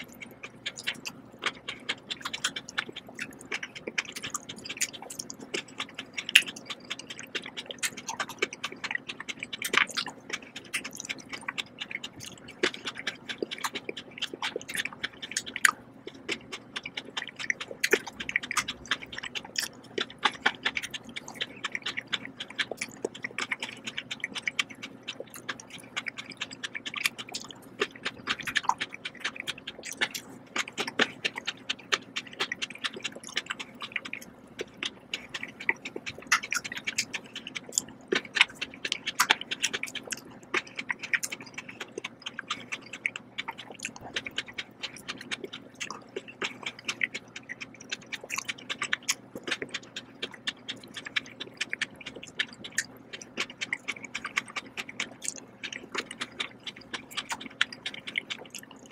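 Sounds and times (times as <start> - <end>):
chewing grapes: 0.0 - 58.9.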